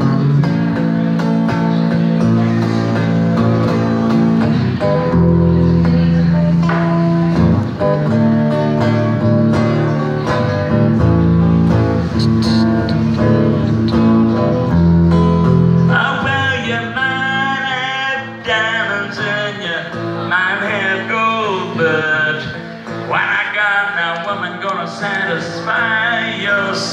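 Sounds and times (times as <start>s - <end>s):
bending guitar lead line: 0.0s - 26.9s
electric guitar chords: 0.0s - 26.9s
heavy low bass part: 11.0s - 15.8s.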